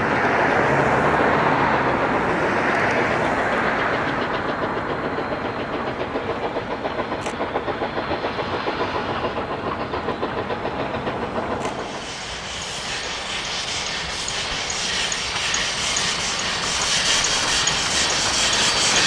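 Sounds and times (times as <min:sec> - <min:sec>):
steam locomotive hissing: 0:00.0 - 0:19.0
train wheels clattering on rails: 0:00.0 - 0:19.0.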